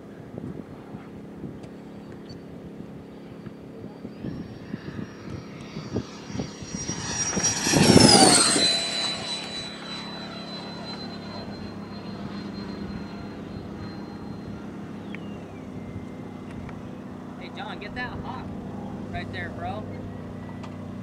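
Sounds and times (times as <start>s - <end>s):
model jet fan whine passing: 0.8s - 21.0s.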